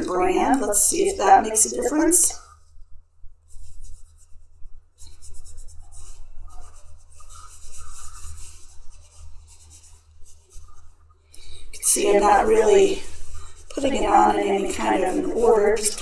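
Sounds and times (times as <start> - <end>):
dry scratchy rubbing: 3.5 - 16.0.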